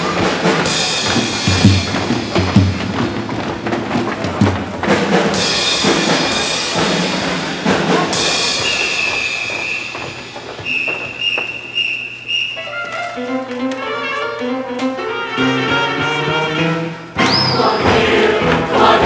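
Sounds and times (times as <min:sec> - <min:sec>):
heavy drum hits: 0:00.0 - 0:08.7
live band music: 0:00.0 - 0:19.0.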